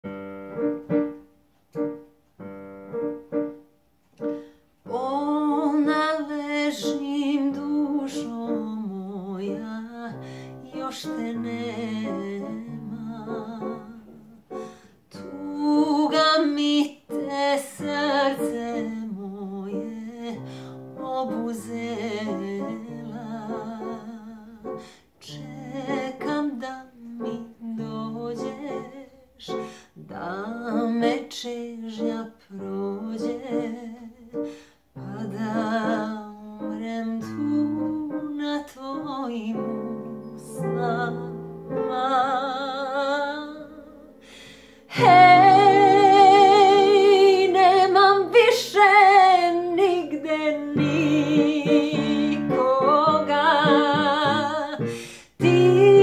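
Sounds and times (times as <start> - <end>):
piano chords: 0.0 - 56.0
woman singing with vibrato: 4.9 - 56.0.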